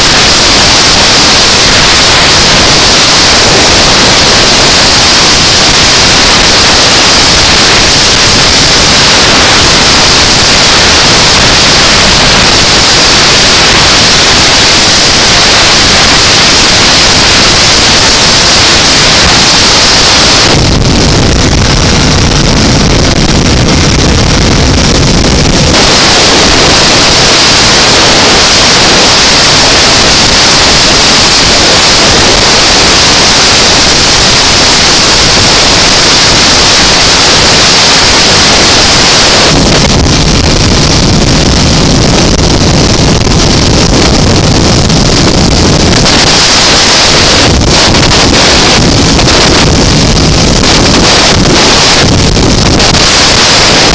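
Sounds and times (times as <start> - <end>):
wind rush on microphone: 0.0 - 53.9
deep low rumble: 20.2 - 29.1.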